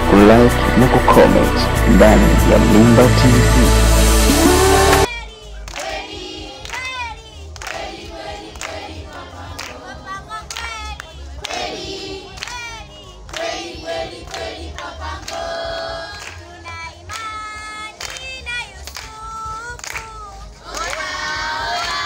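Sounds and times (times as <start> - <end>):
steady beat of sharp strikes: 0.0 - 5.1
children singing in unison: 4.4 - 18.2, 20.7 - 22.0.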